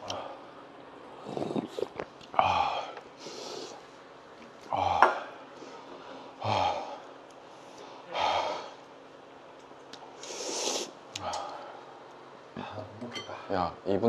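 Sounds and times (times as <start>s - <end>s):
man breathing hard: 4.7s - 7.1s, 7.8s - 8.8s.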